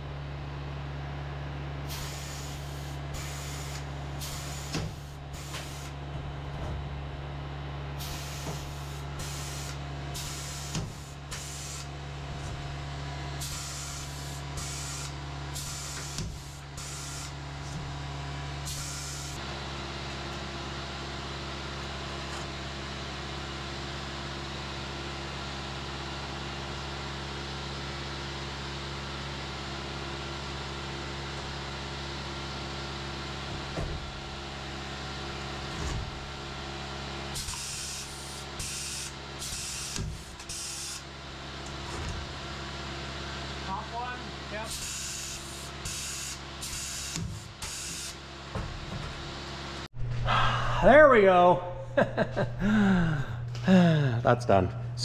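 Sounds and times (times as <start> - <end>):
low machine hum: 0.0 - 46.6, 48.2 - 55.0
short hissing bursts: 1.9 - 4.8.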